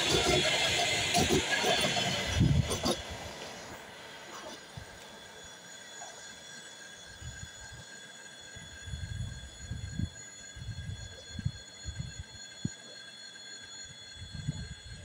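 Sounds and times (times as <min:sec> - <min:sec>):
train wheels knocking: 0:00.0 - 0:03.2
train carriages rolling on rails: 0:00.0 - 0:15.0.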